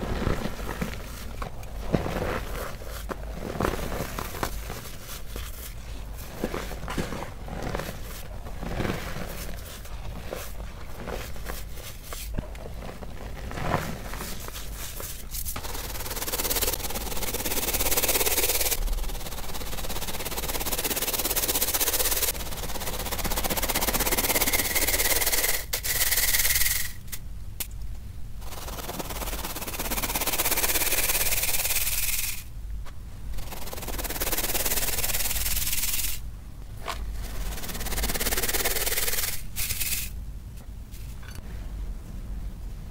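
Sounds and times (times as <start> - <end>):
powder crumbling dry crackling: 0.0 - 17.7
powder hissing through sieve: 0.0 - 27.1, 28.4 - 32.5, 33.3 - 36.3, 37.1 - 40.2.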